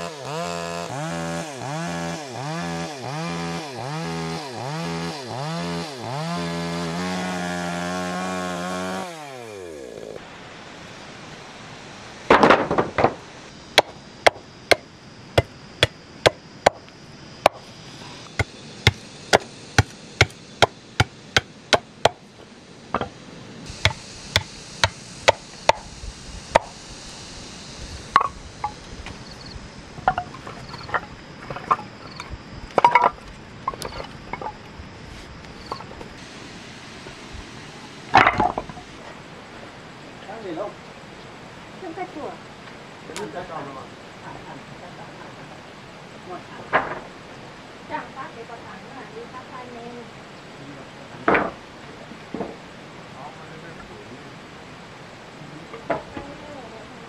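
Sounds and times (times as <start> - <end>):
chainsaw engine winding down: 0.0 - 10.2
hand tool striking wood: 13.8 - 14.8, 15.4 - 16.8, 18.4 - 22.2, 23.8 - 25.9.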